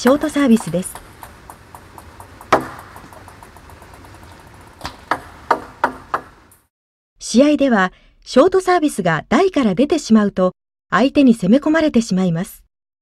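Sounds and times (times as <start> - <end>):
ping pong ball knock: 0.0 - 6.5
racket hitting ball clicks: 0.0 - 6.6.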